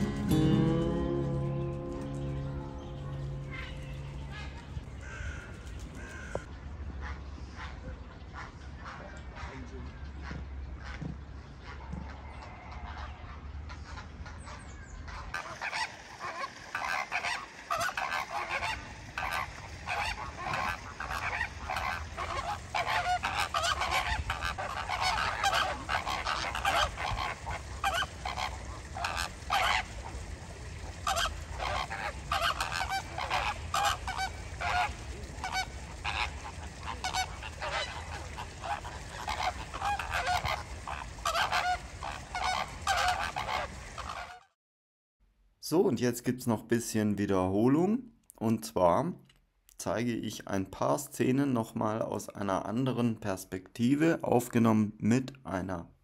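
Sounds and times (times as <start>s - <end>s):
flamingos honking: 0.0s - 7.7s, 11.6s - 44.6s.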